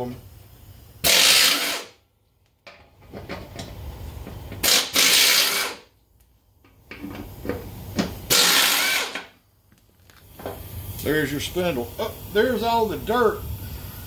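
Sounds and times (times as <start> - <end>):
impact wrench hammering: 1.0 - 1.9, 4.6 - 5.8, 8.0 - 9.3.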